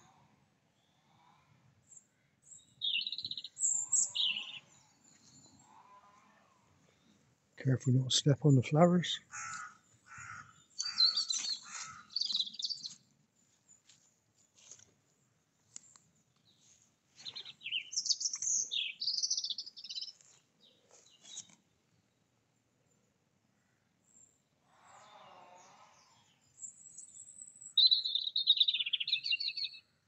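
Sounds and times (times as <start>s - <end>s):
small songbirds chirping: 0.7s - 5.7s, 9.3s - 14.0s, 15.6s - 23.2s, 26.0s - 30.0s.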